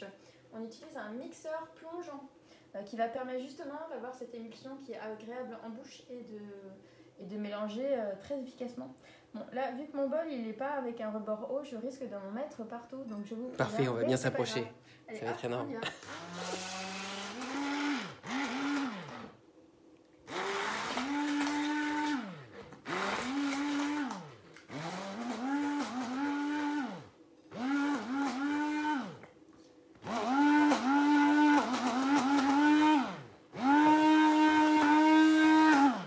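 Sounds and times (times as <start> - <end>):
immersion blender whirring: 16.0 - 19.4, 20.3 - 29.3, 30.0 - 36.0.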